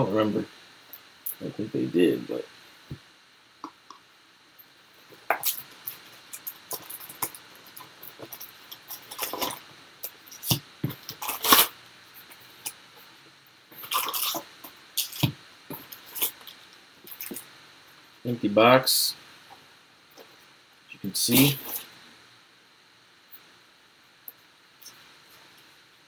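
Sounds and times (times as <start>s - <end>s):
cardboard and wrappers rustling: 5.0s - 12.7s.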